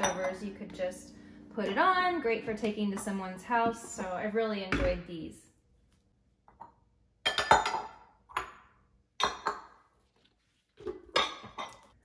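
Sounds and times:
ceramic bowls clinking: 0:00.0 - 0:00.6, 0:06.6 - 0:08.6, 0:09.2 - 0:09.9, 0:10.9 - 0:12.0.

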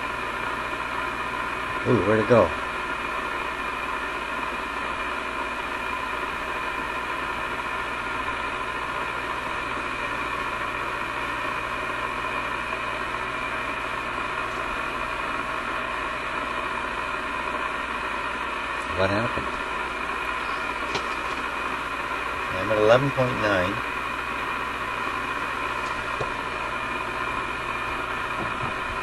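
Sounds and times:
radio static hiss: 0:01.6 - 0:03.4, 0:18.7 - 0:29.0.

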